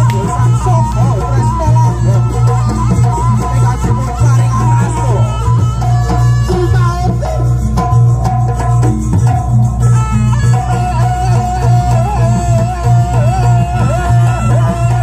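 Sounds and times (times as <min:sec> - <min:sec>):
drum and percussion rhythm: 0:00.0 - 0:15.0
high wavering melody line: 0:00.0 - 0:15.0.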